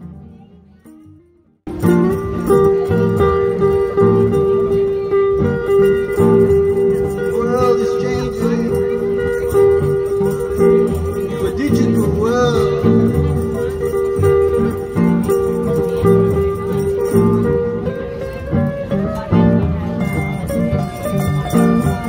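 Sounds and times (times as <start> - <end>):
plucked string blues music: 0.0 - 22.0.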